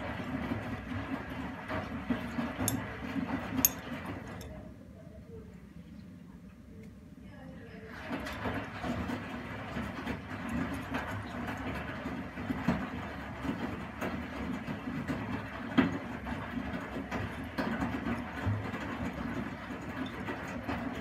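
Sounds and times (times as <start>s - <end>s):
washing machine motor humming: 0.0s - 4.6s, 7.9s - 21.0s
wet laundry churning and dropping: 7.9s - 21.0s.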